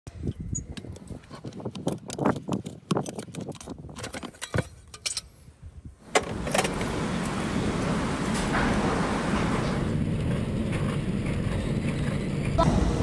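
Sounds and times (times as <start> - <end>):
metal clinks of horseshoe removal: 3.1 - 5.4.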